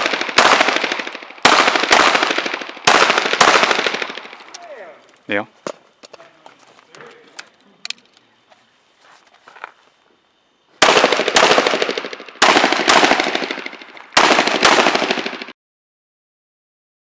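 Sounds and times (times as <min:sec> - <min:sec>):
pistol shots echoing: 0:00.0 - 0:04.8, 0:10.8 - 0:15.5.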